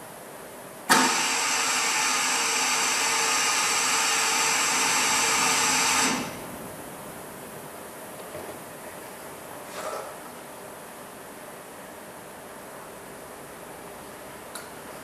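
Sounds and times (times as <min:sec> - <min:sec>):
motor-driven machine whining: 0:00.9 - 0:06.4.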